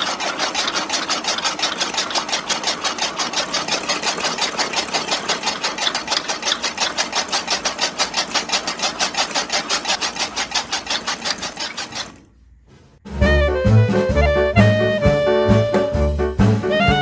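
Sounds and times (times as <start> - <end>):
small electric motor clatter: 0.0 - 12.3.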